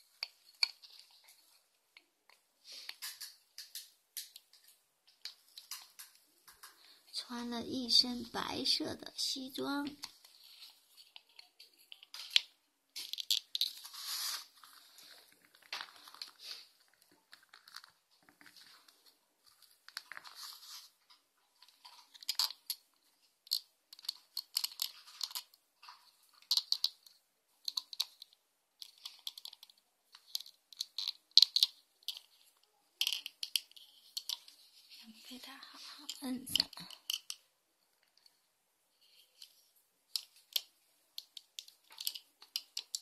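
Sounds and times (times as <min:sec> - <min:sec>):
small plastic clicks: 0:02.0 - 0:06.9, 0:11.0 - 0:13.8, 0:21.1 - 0:22.8, 0:23.4 - 0:34.6, 0:36.0 - 0:38.3, 0:39.0 - 0:43.0
plastic crinkling and rustling: 0:09.8 - 0:27.0.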